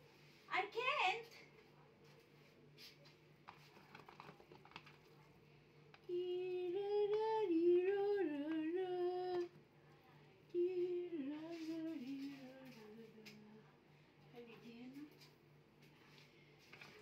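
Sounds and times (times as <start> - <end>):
woman humming a wordless tune: 6.0 - 9.5, 10.5 - 13.6.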